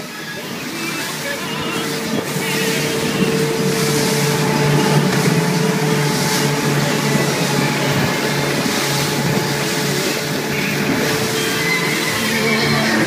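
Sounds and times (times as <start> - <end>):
outboard motors running: 0.0 - 13.0
rush of boat wake: 0.0 - 13.0
wind: 0.0 - 13.0.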